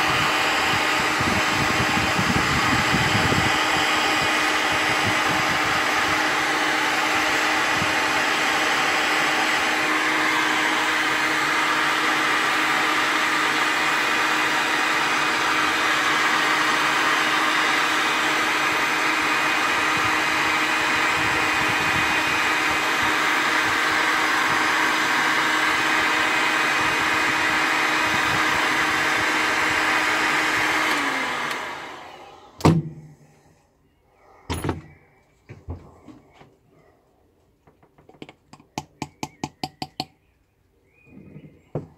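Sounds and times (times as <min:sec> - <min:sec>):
heat gun winding down: 0:00.0 - 0:33.2
heat gun fan whirring: 0:00.0 - 0:33.6, 0:34.5 - 0:36.6, 0:37.6 - 0:41.9.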